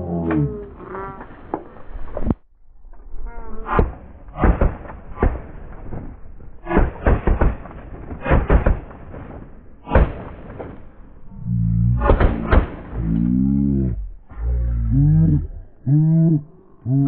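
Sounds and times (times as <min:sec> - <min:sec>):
shotgun shots: 0:03.7 - 0:11.2, 0:12.0 - 0:13.2.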